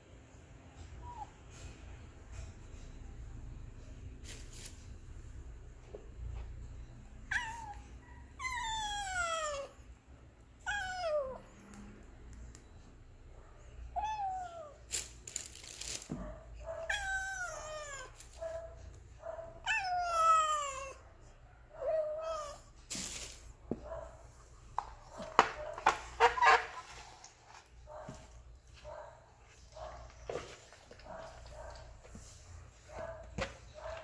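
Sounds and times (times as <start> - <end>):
cats meowing: 7.3 - 9.8, 10.6 - 11.6, 13.9 - 14.8, 16.7 - 18.5, 19.6 - 21.0, 21.8 - 22.7.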